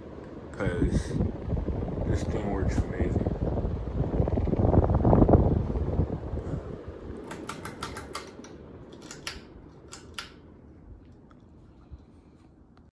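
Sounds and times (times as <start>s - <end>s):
ceiling fan air rush: 0.0s - 12.9s
light clicks: 7.2s - 10.4s.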